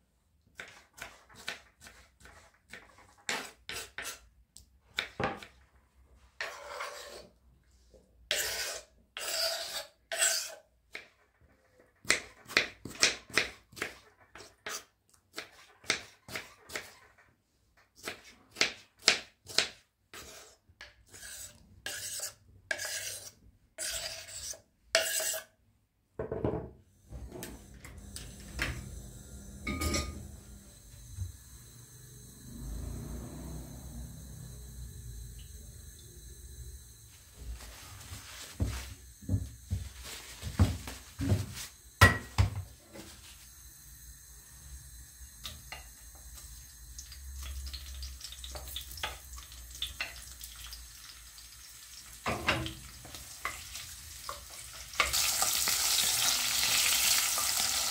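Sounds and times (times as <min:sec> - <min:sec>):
objects scraping and knocking: 0:26.2 - 0:28.9, 0:37.4 - 0:43.3.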